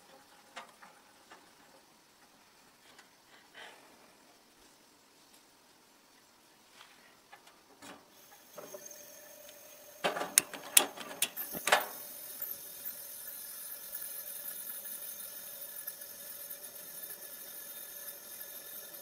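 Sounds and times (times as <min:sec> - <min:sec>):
stove burner hissing: 0:07.1 - 0:19.0.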